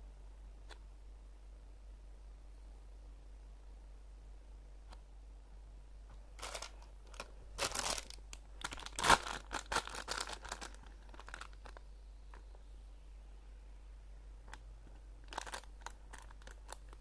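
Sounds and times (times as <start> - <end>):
plastic bag crinkling: 6.3 - 11.8, 15.2 - 17.0.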